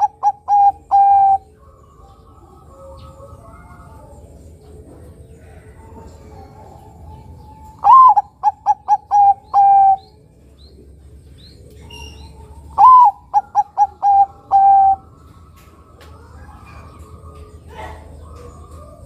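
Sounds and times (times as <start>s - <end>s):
dove cooing: 0.0s - 19.0s.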